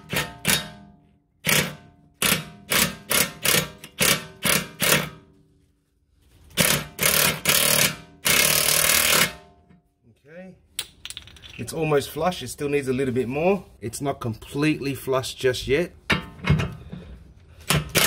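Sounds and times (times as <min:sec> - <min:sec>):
impact wrench hammering: 0:00.0 - 0:05.2, 0:06.6 - 0:09.4, 0:17.6 - 0:18.0.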